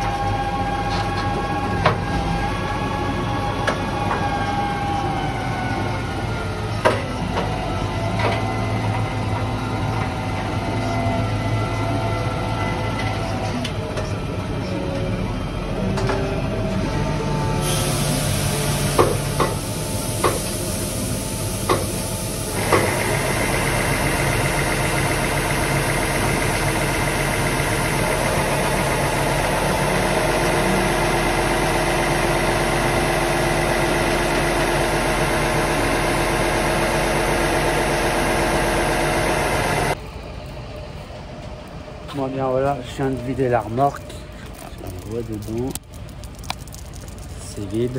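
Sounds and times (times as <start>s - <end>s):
tractor engine running: 11.6s - 42.0s.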